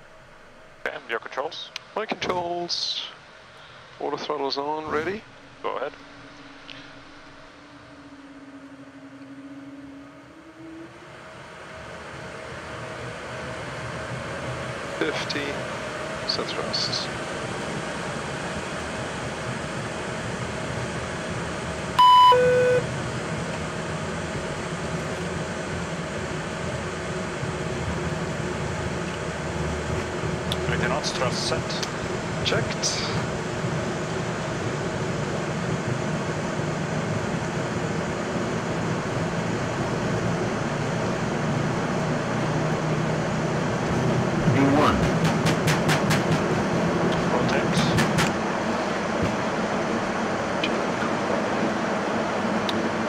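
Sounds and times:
jet engine and airflow noise: 0.0s - 53.0s
two-tone electronic chime: 22.0s - 22.9s.

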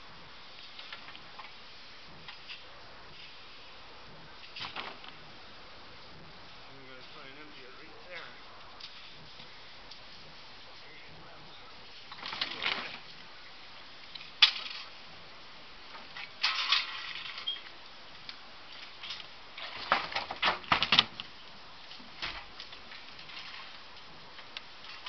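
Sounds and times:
clicks and knocks of metal and wood: 14.1s - 15.0s, 15.9s - 17.8s, 18.8s - 25.0s.

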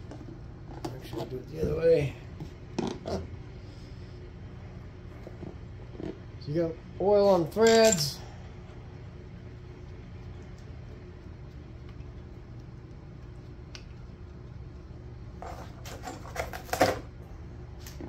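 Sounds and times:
fan humming: 0.0s - 18.0s
light metallic clinks of bolts: 7.5s - 8.2s.

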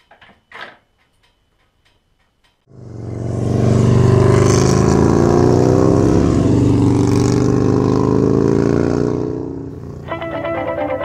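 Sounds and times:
motorcycle engine running: 2.7s - 11.0s.

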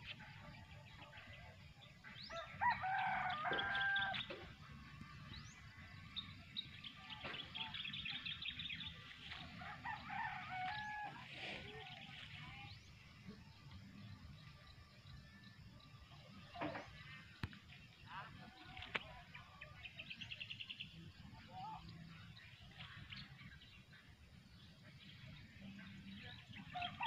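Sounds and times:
rooster crowing: 2.3s - 4.2s.

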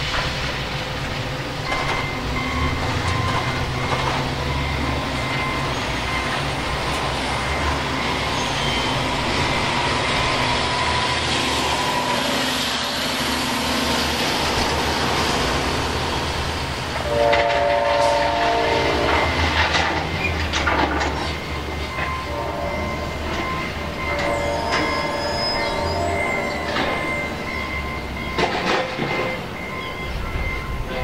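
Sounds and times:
locomotive air horn chord: 17.0s - 19.4s, 22.3s - 27.0s.

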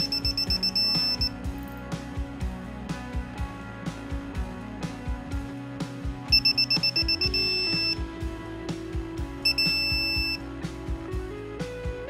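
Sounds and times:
torque wrench beeping: 0.0s - 1.3s, 6.3s - 8.0s, 9.4s - 10.4s
background music with steady beat: 0.0s - 12.0s.

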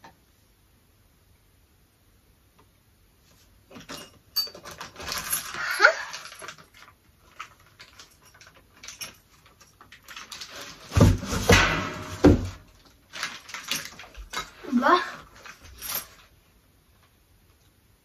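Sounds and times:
plastic bag crinkling: 4.6s - 16.3s.

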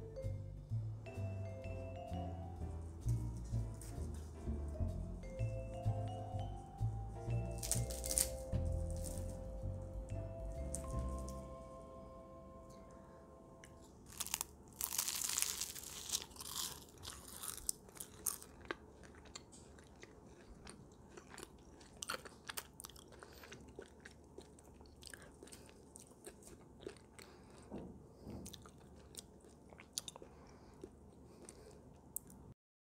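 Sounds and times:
puff pastry crunching: 7.4s - 9.6s, 10.5s - 11.5s, 14.0s - 27.8s
crackling chewing: 7.5s - 9.5s, 14.0s - 27.8s, 28.4s - 32.5s.

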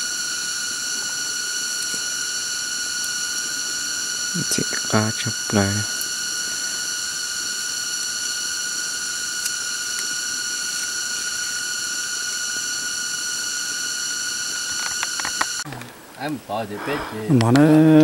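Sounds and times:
insects droning chorus: 0.0s - 18.0s.

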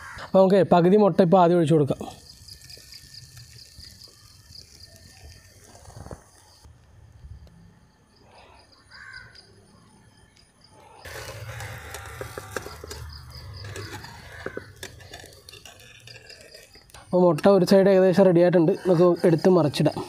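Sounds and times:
egg sizzling in oil: 1.9s - 6.7s, 11.1s - 17.1s
oil popping: 2.2s - 6.7s, 11.1s - 17.5s.

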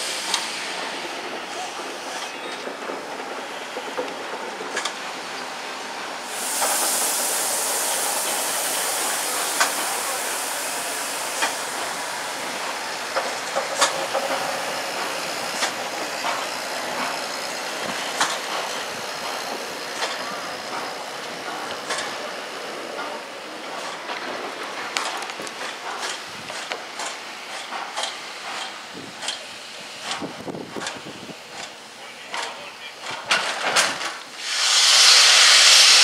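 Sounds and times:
steam hissing: 0.0s - 36.0s
locomotive clicks and knocks: 1.8s - 5.4s, 13.1s - 17.2s, 17.8s - 22.2s, 23.8s - 34.2s.

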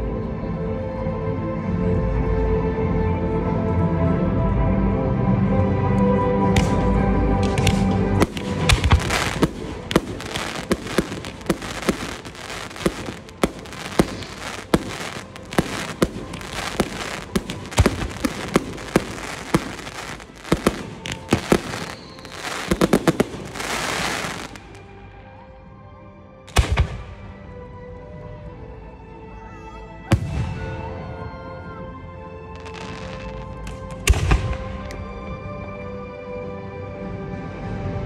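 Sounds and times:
loud music: 6.4s - 24.8s
firework shells bursting: 6.6s - 24.8s
fizzing firework crackle: 7.4s - 24.8s, 32.7s - 33.9s.

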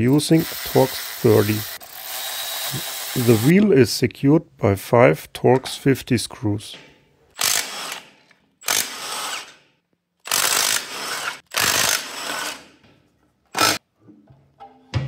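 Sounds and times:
impact wrench bursts: 0.2s - 3.5s, 7.4s - 9.6s, 10.2s - 12.7s.

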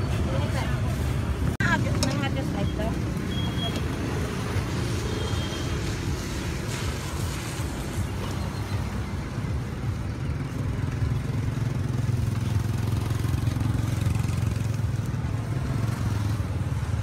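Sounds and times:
street noise: 0.0s - 17.0s.

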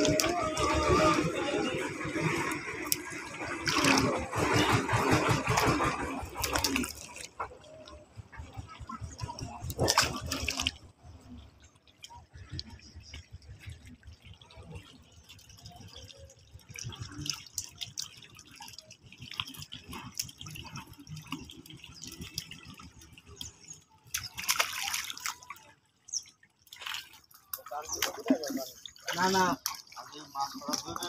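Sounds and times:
loud splash: 0.0s - 7.5s, 8.9s - 10.9s, 24.1s - 25.6s
hands splashing in muddy water: 0.0s - 7.6s, 9.1s - 10.8s, 16.7s - 25.7s
water dripping: 0.0s - 31.0s.

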